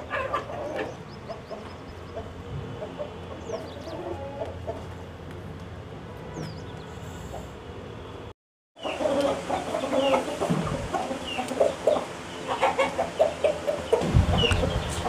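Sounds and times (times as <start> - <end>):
chickens clucking: 0.0 - 5.0, 8.8 - 15.0.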